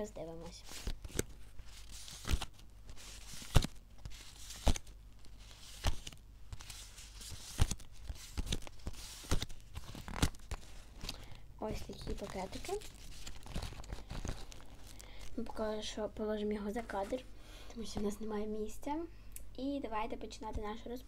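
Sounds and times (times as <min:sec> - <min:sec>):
paper cards rustling: 0:00.2 - 0:15.8
crisp card snaps: 0:03.4 - 0:04.9, 0:07.3 - 0:11.2.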